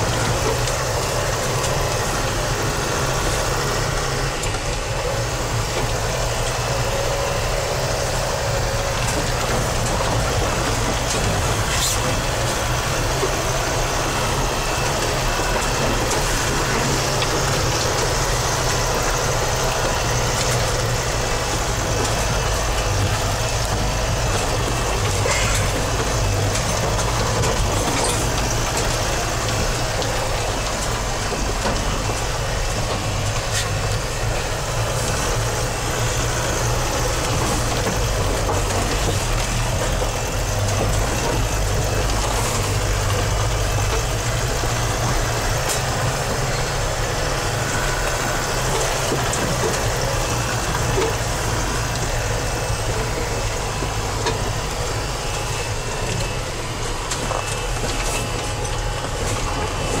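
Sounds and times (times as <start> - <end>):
body and tyre noise: 0.0 - 60.0
van engine drone: 0.0 - 60.0.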